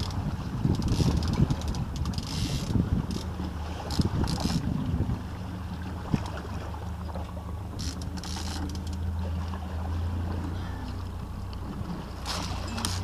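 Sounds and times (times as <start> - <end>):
boat engine humming: 0.0 - 13.0
water splash: 3.3 - 13.0.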